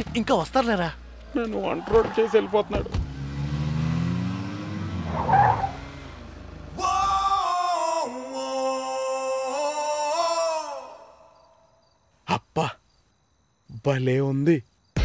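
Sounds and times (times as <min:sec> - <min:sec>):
car engine slowing: 0:00.6 - 0:07.4
film music with held sung note: 0:06.7 - 0:11.9.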